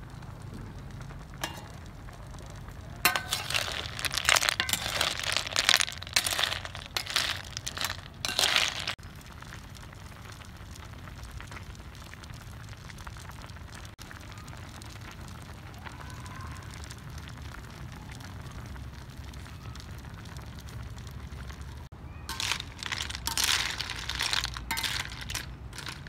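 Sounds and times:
simmering pot rumble: 0.0s - 26.0s
snail shells clattering in metal pot: 1.4s - 2.1s, 3.0s - 9.0s, 22.3s - 26.0s.

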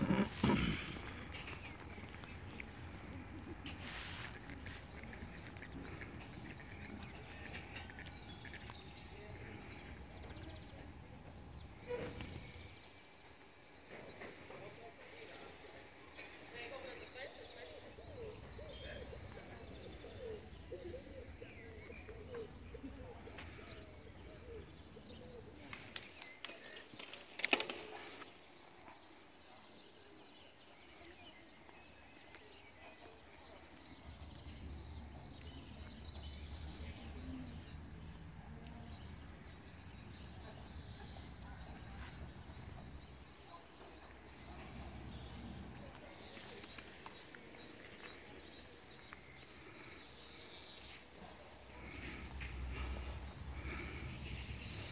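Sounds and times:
birds chirping and calling: 14.1s - 28.0s, 31.0s - 54.9s.

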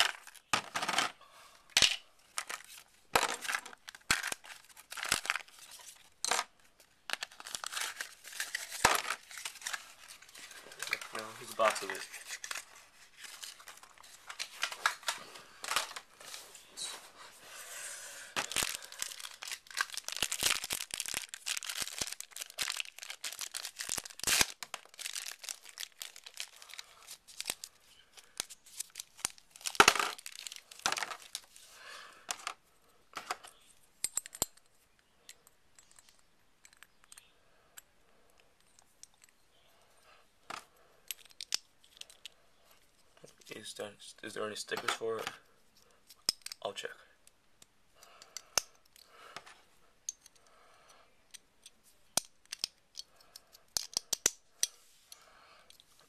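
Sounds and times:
plastic packaging crinkling and tearing: 2.4s - 6.1s, 7.2s - 16.4s, 18.4s - 31.6s.

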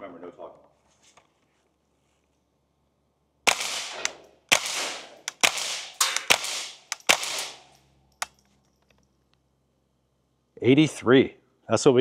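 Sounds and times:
suppressed rifle shots: 3.5s - 7.8s.

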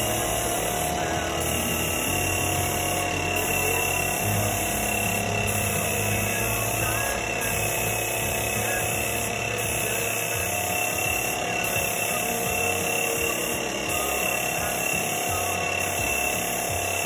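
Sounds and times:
motor-driven spray pump running: 0.0s - 17.0s.

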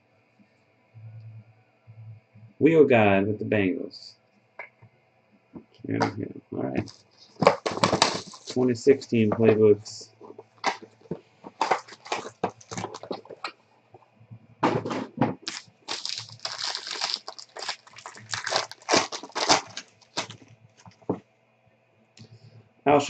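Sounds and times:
foil card pack crinkling and tearing: 6.8s - 8.7s, 10.2s - 13.5s, 15.4s - 21.1s.

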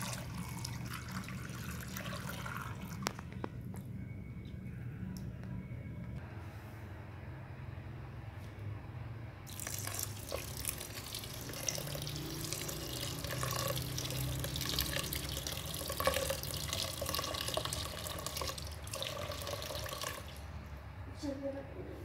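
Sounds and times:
water pouring and splashing: 0.0s - 3.1s, 9.5s - 20.5s.

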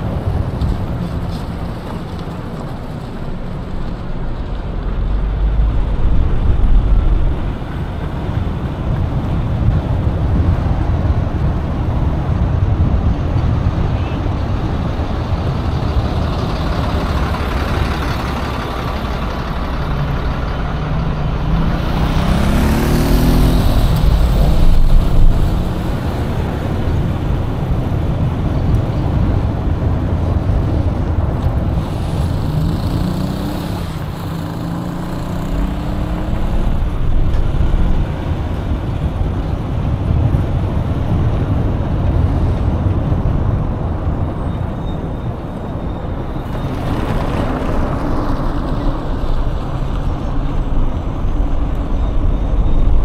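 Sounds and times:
low traffic rumble: 0.0s - 53.0s
vehicle engines: 0.0s - 53.0s
engine pitch climbing: 15.0s - 27.5s.

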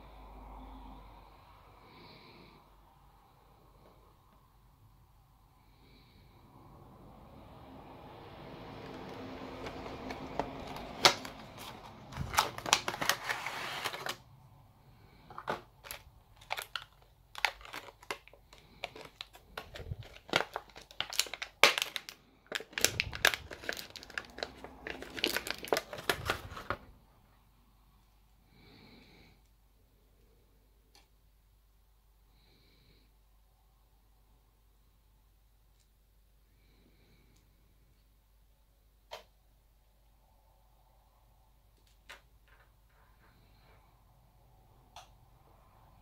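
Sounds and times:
plastic packaging crinkling: 8.8s - 14.2s, 15.3s - 26.9s.

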